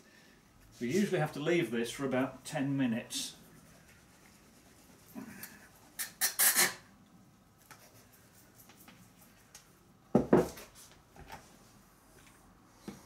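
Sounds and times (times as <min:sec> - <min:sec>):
glass jar set down on table: 0:10.2 - 0:10.6.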